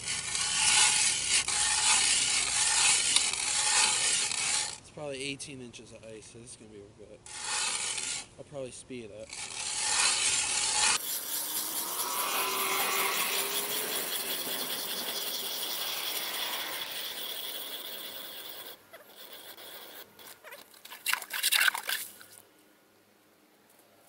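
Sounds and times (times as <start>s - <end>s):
ice auger grinding through ice: 0.0s - 4.8s, 7.3s - 8.3s, 9.3s - 22.2s.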